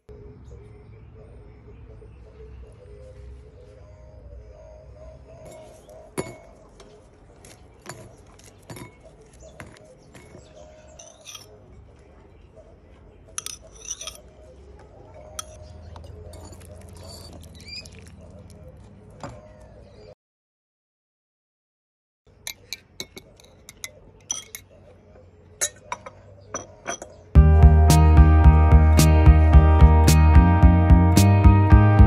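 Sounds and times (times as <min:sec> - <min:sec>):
metal spoon clinking on dishes: 0:05.4 - 0:06.6, 0:07.8 - 0:09.2, 0:11.0 - 0:11.5, 0:13.4 - 0:14.3, 0:15.4 - 0:15.6, 0:22.4 - 0:24.7, 0:25.6 - 0:27.2
music: 0:27.4 - 0:32.0.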